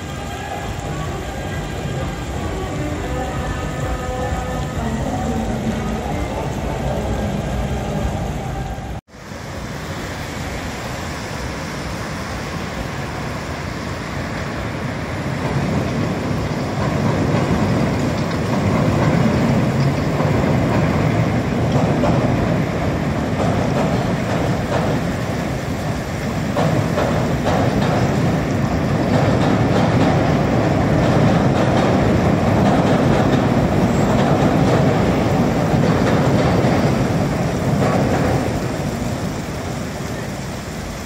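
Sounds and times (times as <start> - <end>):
city traffic: 0.0 - 41.0
elevated train on steel structure: 0.0 - 41.0.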